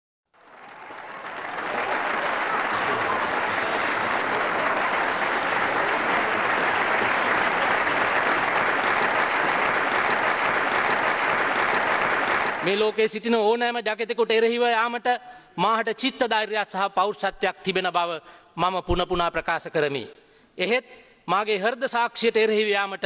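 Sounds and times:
crowd applause: 0.4 - 13.1.

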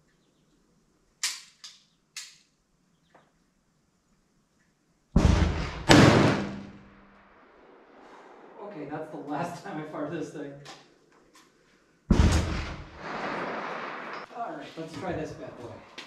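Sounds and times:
sharp clicks: 1.2 - 2.5
shotgun shots echoing: 5.2 - 8.6, 12.1 - 14.3.

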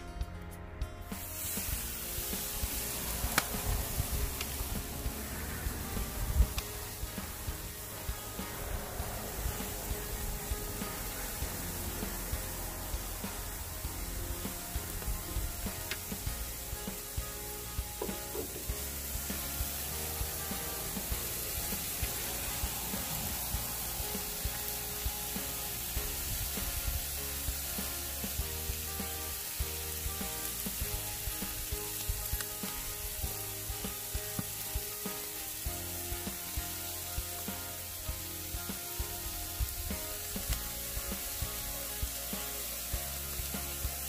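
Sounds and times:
background music with bass: 0.0 - 44.0
steak sizzling on a grill: 1.0 - 44.0
sharp pops: 1.2 - 5.2, 14.4 - 17.2, 17.9 - 25.8.

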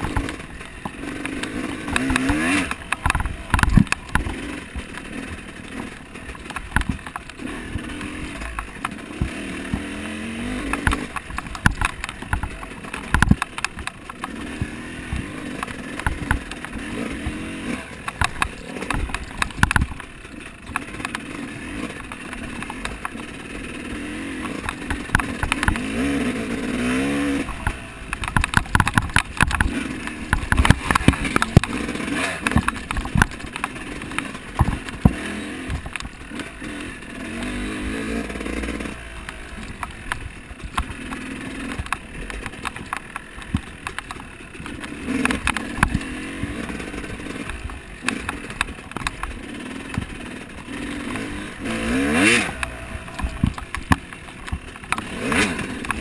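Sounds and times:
bike knocks and rattles: 0.0 - 56.0
dirt bike engine revving: 0.0 - 56.0.

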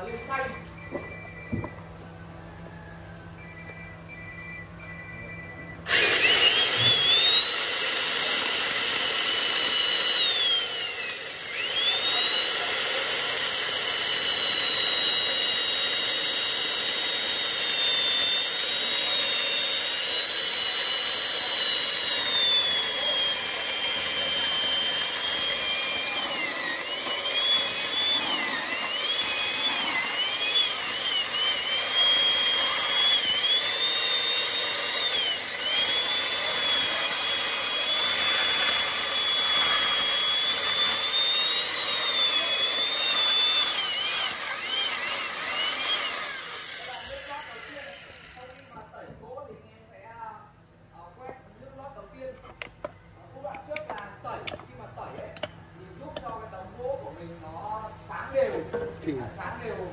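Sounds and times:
power tool motor whine: 0.0 - 49.0.

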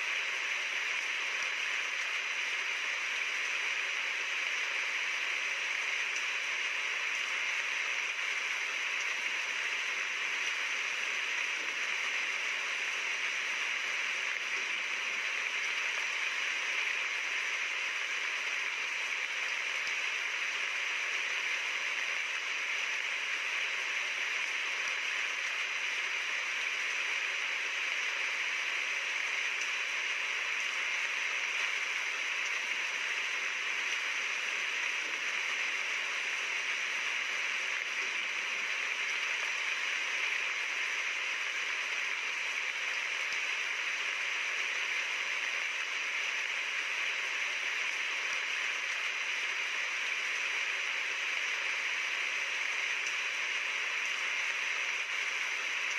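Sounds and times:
steady rain falling: 0.0 - 55.9.

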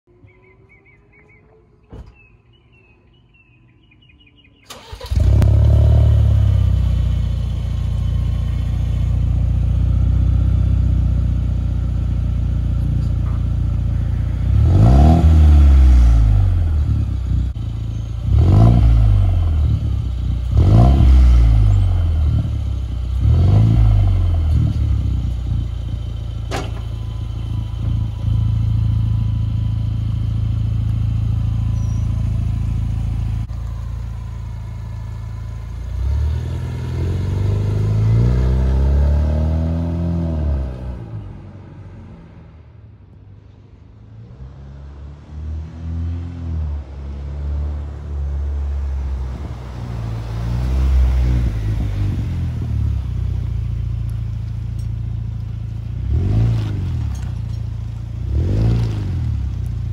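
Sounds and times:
engine revving: 4.7 - 41.3, 55.8 - 59.9
truck accelerating away: 4.7 - 42.6, 44.2 - 59.9
truck engine idling: 25.2 - 36.4.

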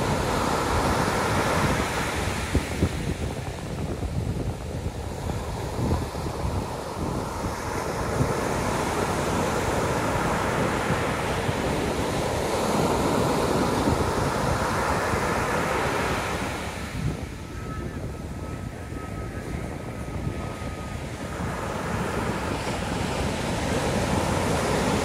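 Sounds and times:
surf breaking on beach: 0.0 - 25.0
wind buffeting microphone: 0.0 - 25.0.

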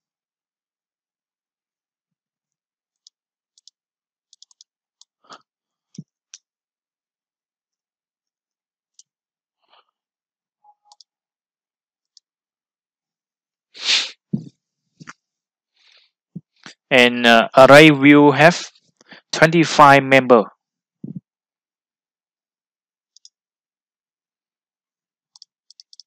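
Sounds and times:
mouse clicks: 23.2 - 23.4, 25.4 - 26.0.

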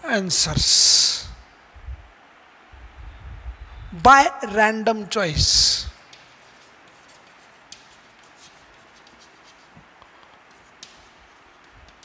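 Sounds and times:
chalk scratching on chalkboard: 6.1 - 12.0.

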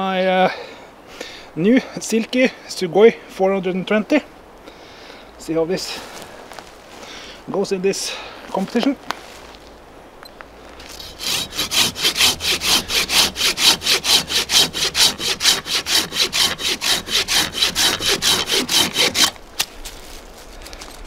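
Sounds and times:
pull saw cutting a log: 10.9 - 19.4.

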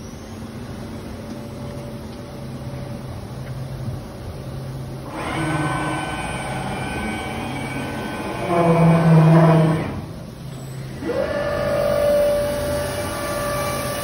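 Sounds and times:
low machine hum: 0.0 - 14.0
machine whines: 5.0 - 14.0
machine hiss: 10.4 - 14.0.

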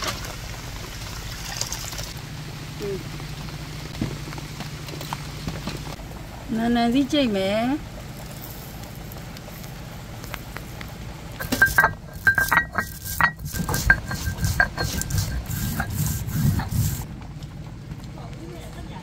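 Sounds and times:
stone roller grinding grain: 11.4 - 17.1.

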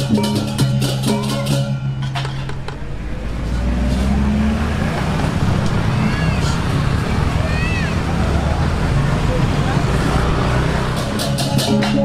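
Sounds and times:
gamelan metallophones and drum: 0.0 - 4.6, 10.4 - 12.0.

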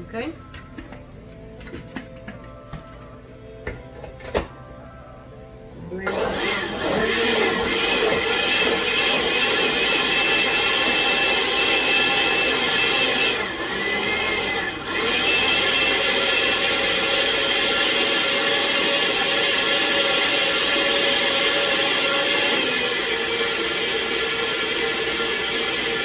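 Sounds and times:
blender motor running: 6.1 - 26.0.

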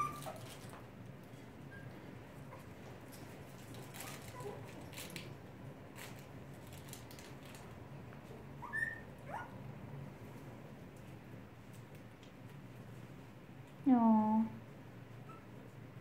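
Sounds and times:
puppies whimpering: 0.0 - 0.7, 8.6 - 9.6.

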